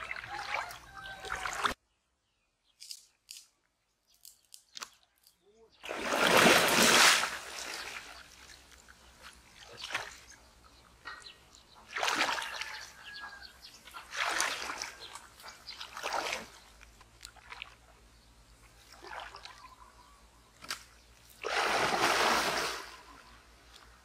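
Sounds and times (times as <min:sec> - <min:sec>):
person wading in splashing water: 0:00.0 - 0:01.8, 0:05.8 - 0:10.5, 0:11.8 - 0:13.2, 0:13.8 - 0:18.1, 0:18.8 - 0:19.8, 0:21.3 - 0:23.2.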